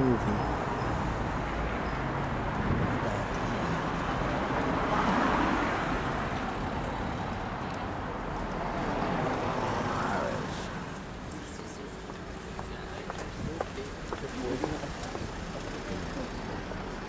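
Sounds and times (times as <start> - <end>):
car passing: 0.0 - 17.0
city road traffic: 0.0 - 17.0.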